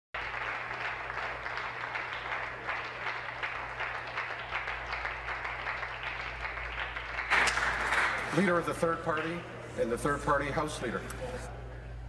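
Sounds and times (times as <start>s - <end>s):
crowd applauding: 0.2s - 9.5s.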